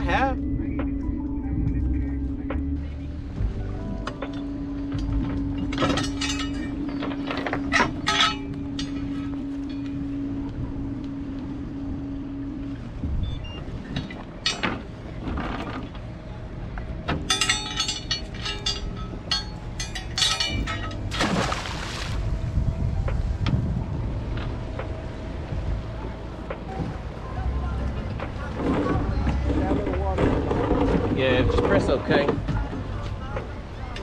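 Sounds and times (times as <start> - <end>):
steady hum: 0.0 - 34.0
anchor chain clinking and rattling: 4.3 - 10.2, 13.9 - 16.3, 16.9 - 21.2
wind on microphone: 21.2 - 26.0.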